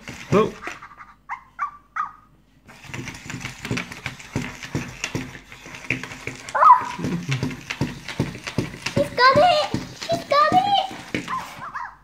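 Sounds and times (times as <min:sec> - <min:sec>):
small toy motor running: 0:00.0 - 0:00.9, 0:02.7 - 0:11.9
plastic feet tapping on wood: 0:02.7 - 0:11.7.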